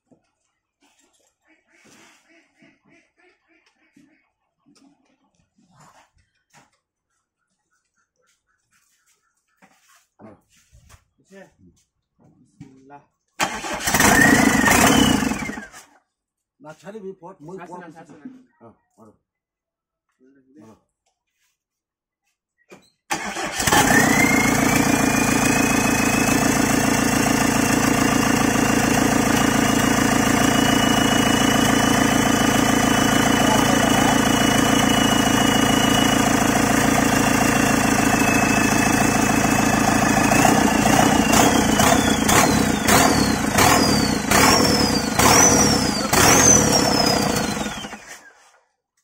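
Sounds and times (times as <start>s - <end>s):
diesel engine running with high whine: 13.4s - 15.8s, 23.2s - 48.2s.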